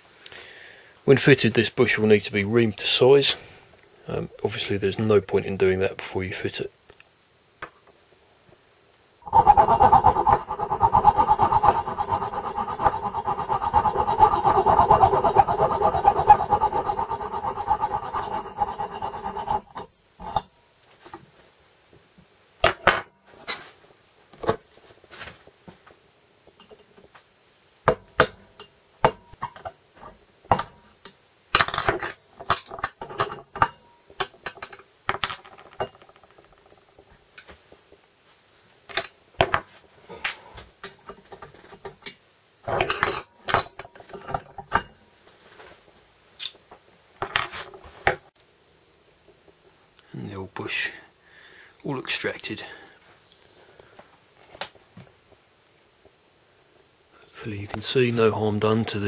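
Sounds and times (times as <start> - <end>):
hacksaw rasping through metal: 9.2 - 19.9.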